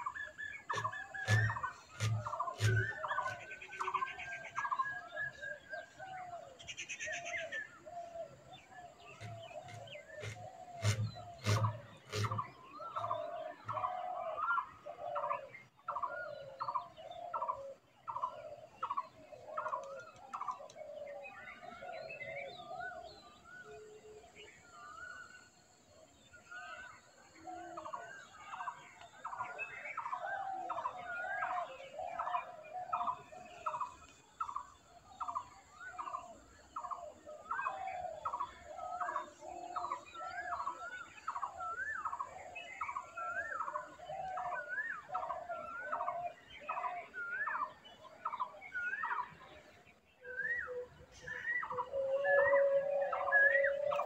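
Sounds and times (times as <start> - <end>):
birds whistling: 0.0 - 20.6, 50.2 - 54.0.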